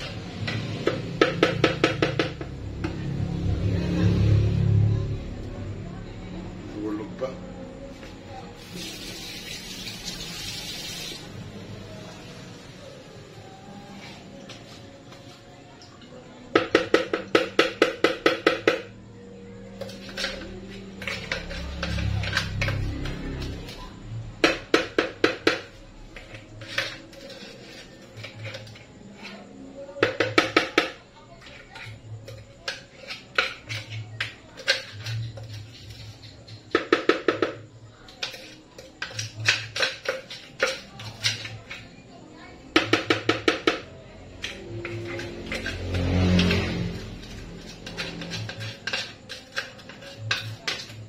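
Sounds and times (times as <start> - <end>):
kitchenware clatter: 0.0 - 3.0, 19.8 - 51.0
spoon scraping blender jar: 19.8 - 23.9, 26.1 - 29.5, 31.4 - 41.9, 44.4 - 51.0.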